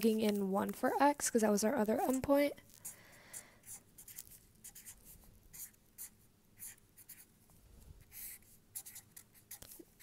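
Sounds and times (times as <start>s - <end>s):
marker scratching on paper: 1.9s - 2.9s, 3.6s - 7.3s, 8.0s - 10.0s.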